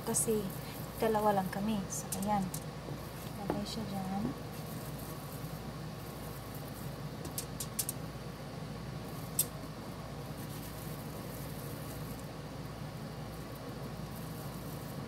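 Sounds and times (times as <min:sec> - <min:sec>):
low room hum: 0:00.0 - 0:15.0
light clicks on aluminium foil: 0:02.0 - 0:02.7, 0:07.3 - 0:08.0, 0:09.3 - 0:09.6.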